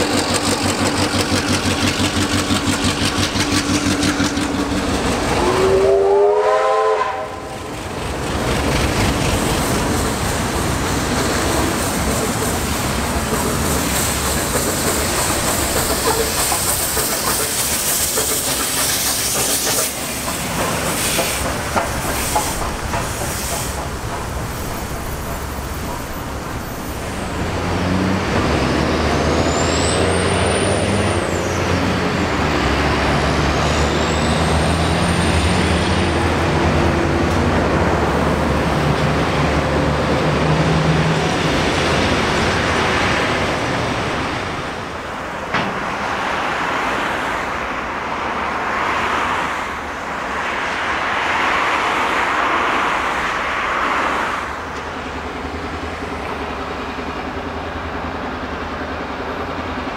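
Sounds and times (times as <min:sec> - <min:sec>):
carriages rolling on rails: 0:00.0 - 0:59.9
locomotives passing: 0:00.0 - 0:59.9.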